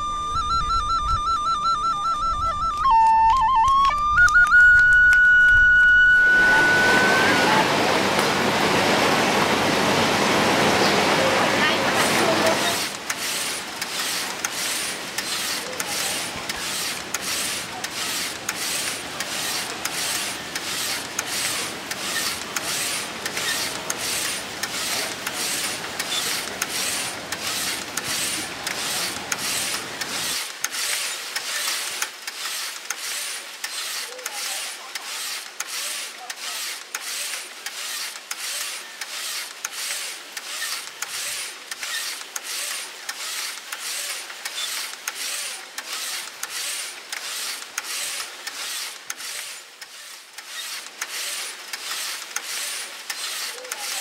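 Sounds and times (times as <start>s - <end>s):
rhythmic mechanical rasping: 12.0s - 54.0s.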